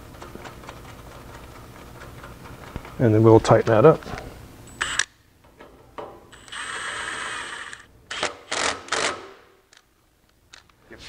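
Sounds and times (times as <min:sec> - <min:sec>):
cordless power tool motor: 0:06.4 - 0:09.2.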